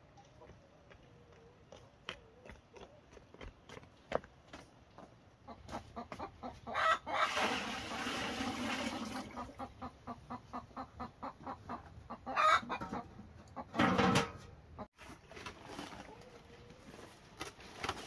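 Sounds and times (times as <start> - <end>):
chickens clucking: 5.3 - 14.9, 15.8 - 17.1.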